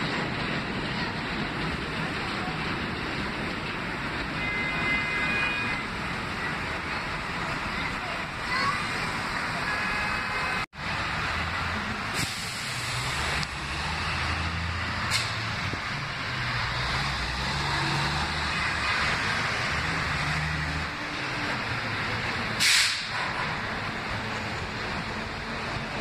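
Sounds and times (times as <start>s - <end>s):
heavy vehicle engine running: 0.0s - 26.0s
traffic noise rushing: 0.0s - 26.0s
sharp hisses: 12.1s - 13.4s, 15.0s - 15.5s, 22.5s - 23.3s.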